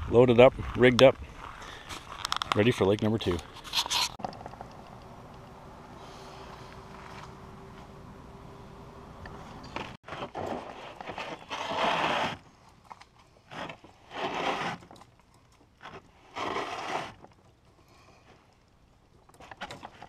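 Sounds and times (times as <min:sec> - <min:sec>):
canoe hull scraping on pebbles: 0:09.8 - 0:12.5, 0:13.4 - 0:15.1, 0:15.8 - 0:17.4.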